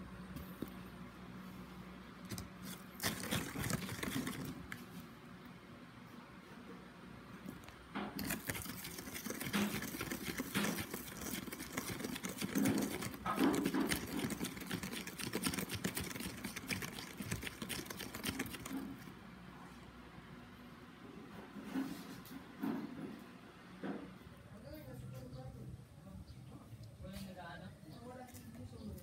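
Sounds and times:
spoon scraping plastic cup: 2.3s - 4.8s, 8.2s - 19.0s.

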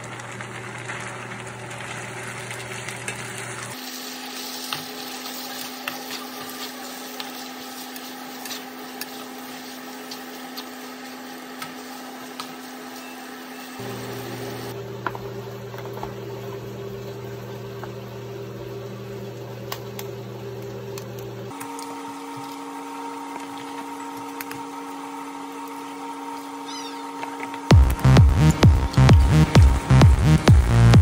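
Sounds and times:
steady machine hum: 6.8s - 31.0s.

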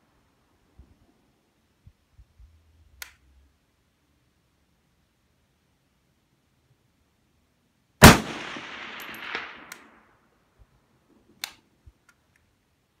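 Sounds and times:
rifle shot echoing: 8.0s - 10.0s.

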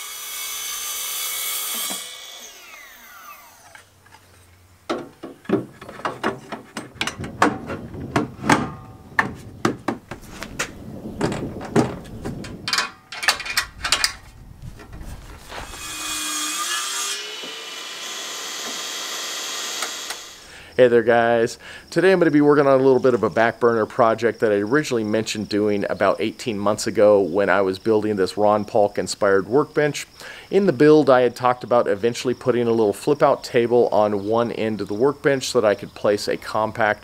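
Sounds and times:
track saw cutting plywood: 0.0s - 3.9s, 15.5s - 20.4s
table saw whine: 0.0s - 4.4s, 15.5s - 20.5s
woodworking knocks and clatters: 4.9s - 16.0s.

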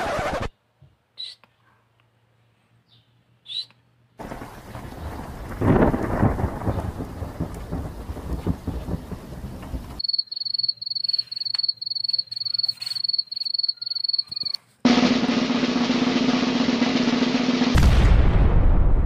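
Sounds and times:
high thin chirp: 10.0s - 14.6s
loud rushing noise: 14.9s - 18.1s.

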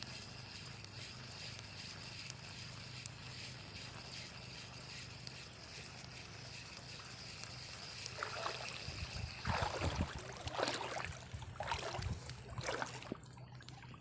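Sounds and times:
seawater splashing and sloshing: 7.8s - 14.0s.

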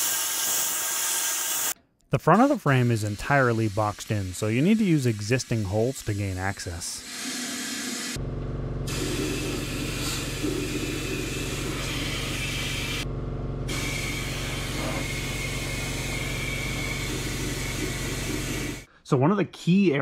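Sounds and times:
air spray gun hissing: 0.0s - 1.8s, 2.7s - 8.2s, 8.9s - 13.0s, 13.7s - 18.9s
low machine hum: 8.2s - 18.9s.

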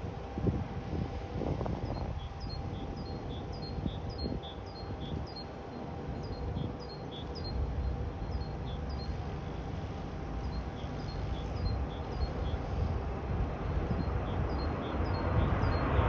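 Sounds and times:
distant jet rumble: 0.0s - 16.0s
small bird chirping: 6.2s - 9.2s.

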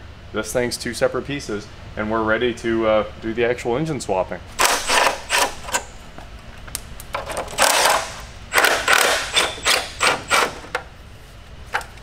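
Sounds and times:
hand ratchet strokes: 4.6s - 5.8s, 7.5s - 10.8s.

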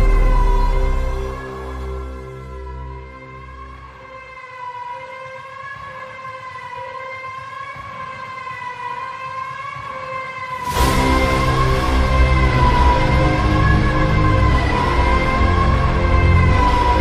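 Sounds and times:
sustained synth note: 0.0s - 3.7s.

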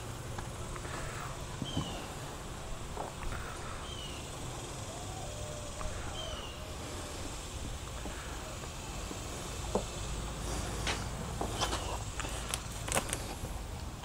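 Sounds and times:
bird chirping: 0.9s - 8.9s.

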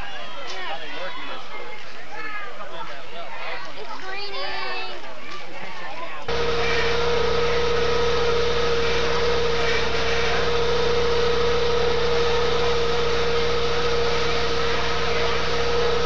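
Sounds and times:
engine running steadily: 6.3s - 16.0s.

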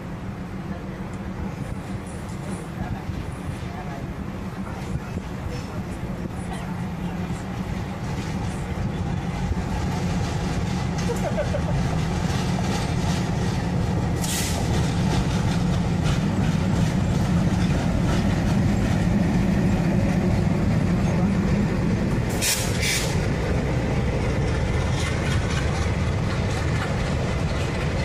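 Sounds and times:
diesel locomotive engine rumble: 0.0s - 28.0s
train coaches rolling by: 0.0s - 28.0s
wheels clacking: 8.0s - 28.0s.

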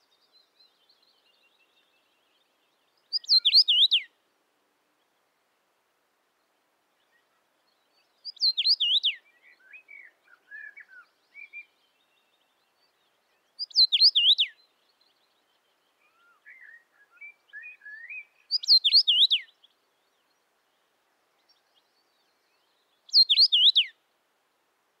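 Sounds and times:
soft bird twittering: 2.9s - 4.1s, 7.0s - 20.4s, 21.4s - 23.9s
bird whistled song: 3.1s - 4.1s, 8.2s - 11.8s, 13.5s - 14.7s, 16.0s - 19.6s, 22.5s - 24.0s.

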